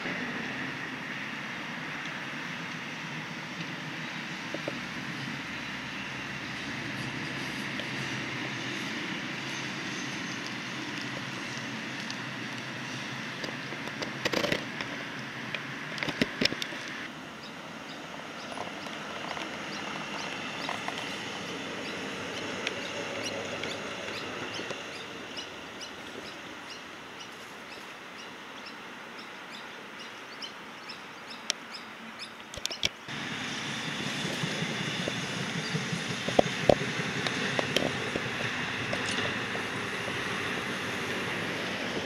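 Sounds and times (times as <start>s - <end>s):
road traffic noise: 0.0s - 42.0s.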